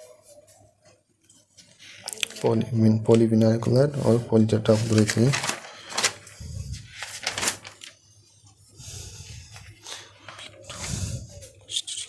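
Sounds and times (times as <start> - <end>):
scraping and rustling: 4.0 - 8.0.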